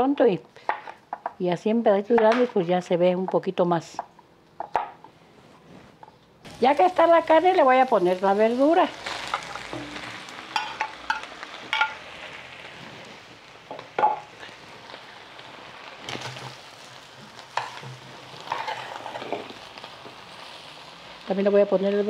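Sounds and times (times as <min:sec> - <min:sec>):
meat sizzling in a pan: 0:06.4 - 0:22.0
spatula scraping a pan: 0:17.5 - 0:19.5.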